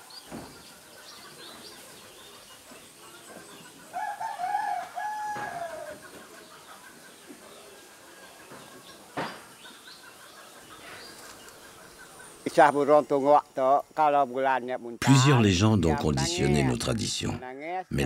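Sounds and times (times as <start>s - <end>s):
rooster crowing: 3.9s - 6.0s.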